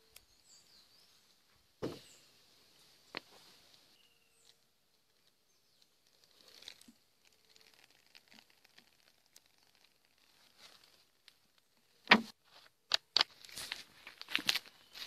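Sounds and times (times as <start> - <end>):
faint rustles and ticks: 2.7 - 12.7.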